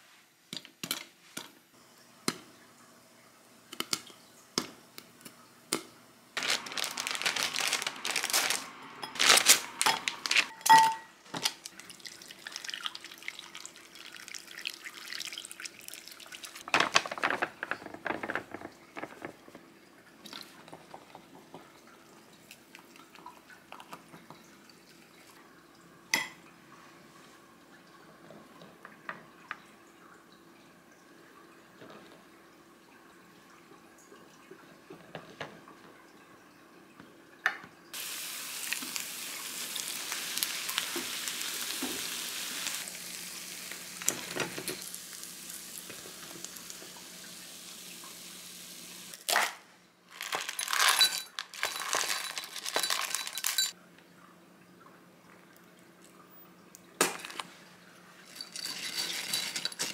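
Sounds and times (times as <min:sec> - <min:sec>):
popcorn rattling in shaken pan: 0:06.4 - 0:10.6, 0:16.6 - 0:19.6, 0:50.1 - 0:53.8, 0:58.3 - 0:59.9.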